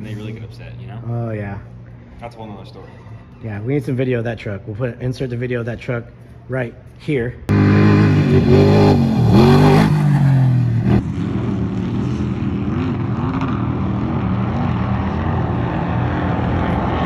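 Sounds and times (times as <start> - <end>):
truck engine revving: 7.5 - 17.0.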